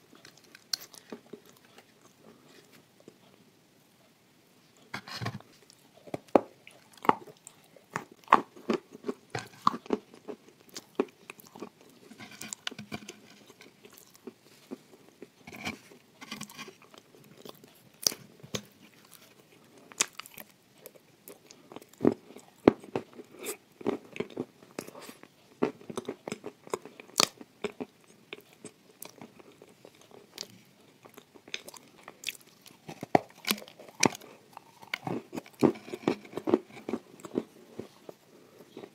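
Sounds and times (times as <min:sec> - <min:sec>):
biscuit crunching: 0:00.0 - 0:03.2, 0:05.6 - 0:38.9
wet chewing: 0:16.2 - 0:38.9.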